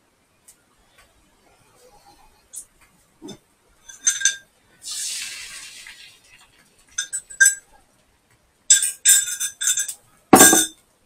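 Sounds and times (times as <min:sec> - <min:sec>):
utensil clinking against cookware: 0:03.2 - 0:04.4, 0:08.7 - 0:10.7
short hiss: 0:04.8 - 0:06.1.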